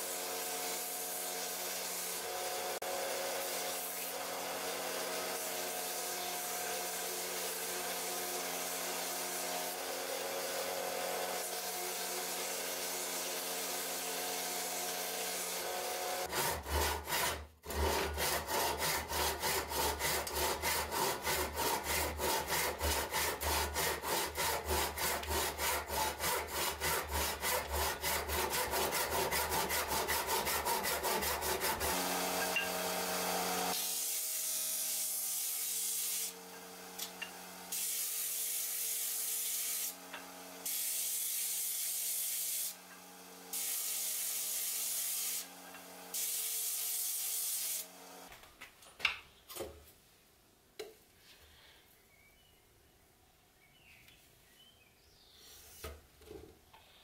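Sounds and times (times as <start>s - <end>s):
belt grinder grinding steel: 0.0s - 47.9s
hand saw cutting wood: 0.0s - 48.4s, 55.4s - 56.4s
disc sander sanding wood: 4.9s - 10.6s, 11.2s - 34.4s.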